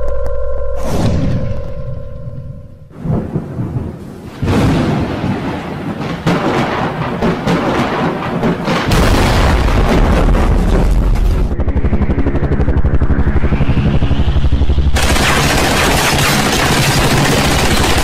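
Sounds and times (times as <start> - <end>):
deep booming rumble: 8.9 - 17.5
fast repeating pulse: 10.9 - 18.0.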